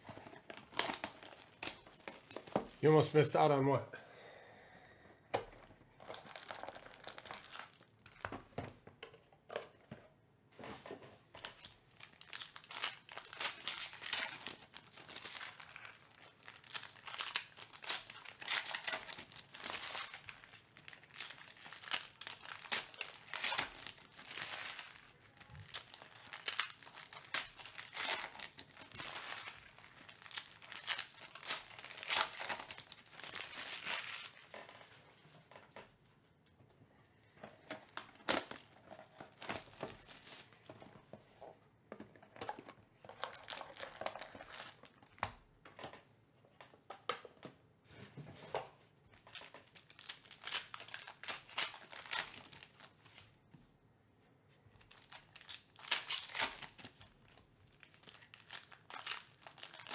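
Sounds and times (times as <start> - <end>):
foil packs crinkling and tearing: 0.4 - 3.4, 6.0 - 8.2, 11.4 - 34.6, 43.1 - 45.0, 49.3 - 52.9, 54.9 - 59.9.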